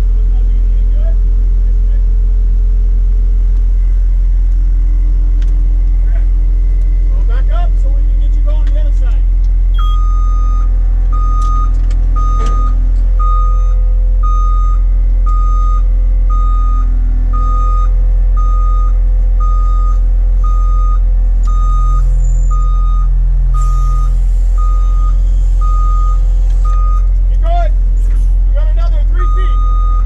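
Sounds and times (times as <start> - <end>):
low engine drone: 0.0 - 30.0
reversing alarm beeping: 9.7 - 27.2, 29.0 - 30.0.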